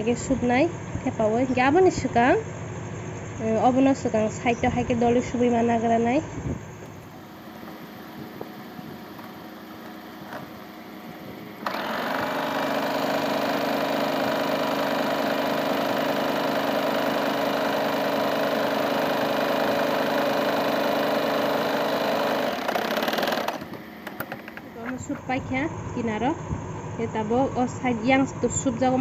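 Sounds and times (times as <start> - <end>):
sewing machine stitching: 11.6 - 24.5.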